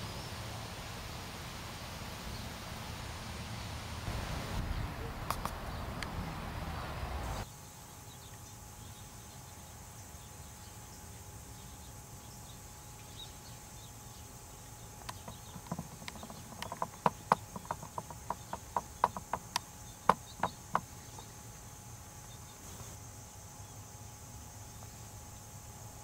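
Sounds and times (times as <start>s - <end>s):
insects droning: 0.0s - 26.0s
sharp irregular clicks: 15.0s - 21.3s.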